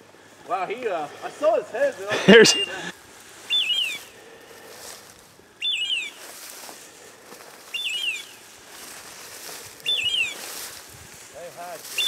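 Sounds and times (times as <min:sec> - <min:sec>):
beeper collar chirping: 0:02.2 - 0:02.9, 0:03.5 - 0:04.2, 0:05.6 - 0:06.3, 0:07.7 - 0:08.5, 0:09.8 - 0:10.7.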